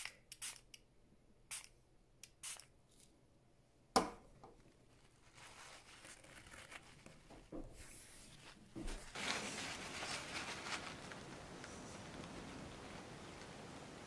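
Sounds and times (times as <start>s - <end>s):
paper towel rustling: 4.6s - 14.0s.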